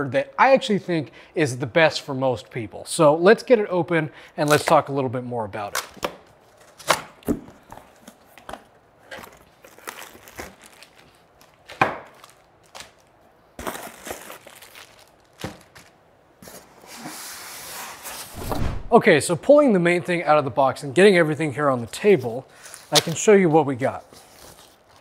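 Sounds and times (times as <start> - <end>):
plastic bags crinkling: 9.2 - 16.0.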